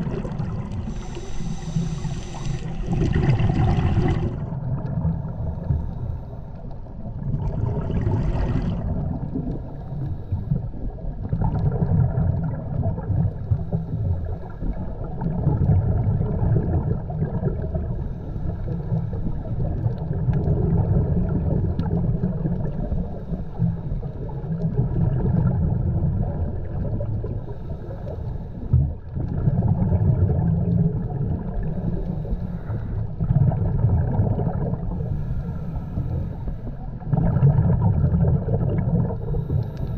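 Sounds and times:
water gurgling: 0:00.0 - 0:05.8, 0:06.9 - 0:09.8, 0:10.6 - 0:18.0, 0:18.8 - 0:27.7, 0:28.7 - 0:36.1, 0:36.7 - 0:39.8
underwater low rumble: 0:00.0 - 0:39.9.

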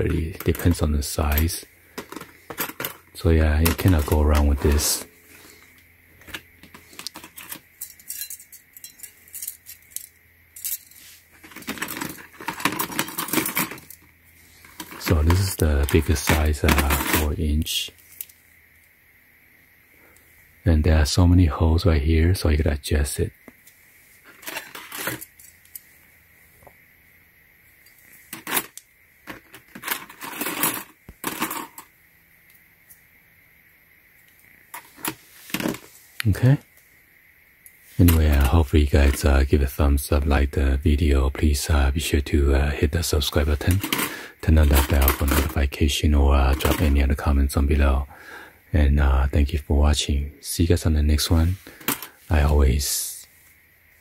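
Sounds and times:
metal hose clamps clinking: 0:06.3 - 0:14.0.

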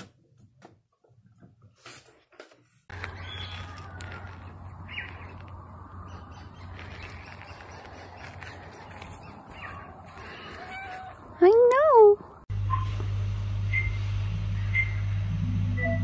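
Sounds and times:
birds chirping: 0:02.9 - 0:11.1
steady low hum: 0:12.3 - 0:16.0.

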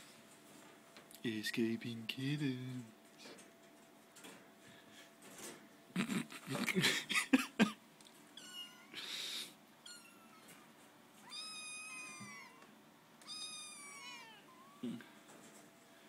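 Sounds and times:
kittens mewing: 0:08.4 - 0:15.2.

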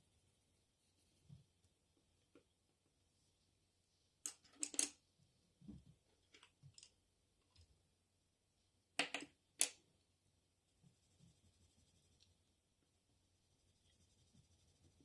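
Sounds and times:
pencils clicking together: 0:04.3 - 0:05.0.

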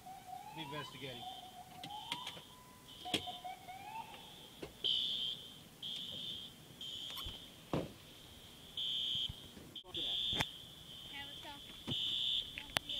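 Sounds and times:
siren tone sliding up: 0:00.0 - 0:04.6
high-pitched electronic alarm beeps: 0:00.0 - 0:07.6, 0:08.2 - 0:12.9.

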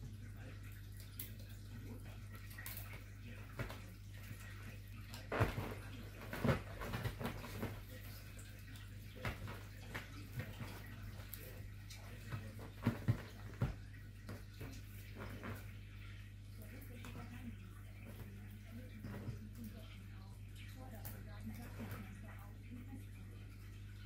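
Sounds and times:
kitten scrabbling on leather sofa: 0:05.1 - 0:08.4, 0:09.0 - 0:15.8.

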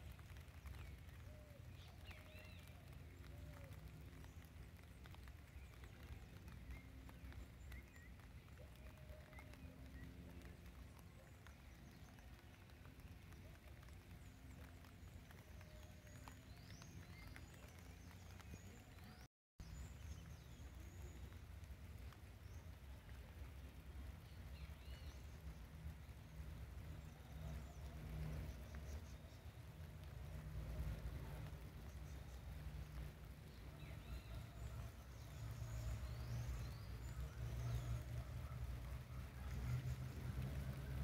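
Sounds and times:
low steady rumble: 0:00.0 - 0:41.0.

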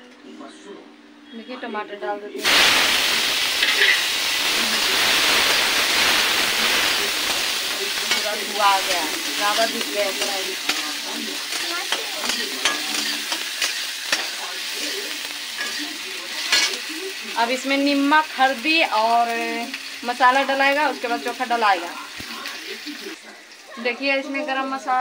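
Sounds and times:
tomatoes sizzling in hot oil: 0:02.4 - 0:25.0
metal spatula scraping pan: 0:03.6 - 0:04.0, 0:08.1 - 0:14.4.

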